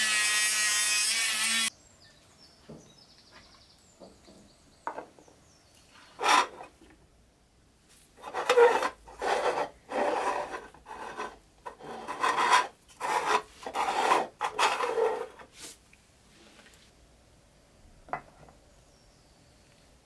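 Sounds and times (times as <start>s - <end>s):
plastic scraping on wood: 6.2s - 6.8s, 8.2s - 15.5s.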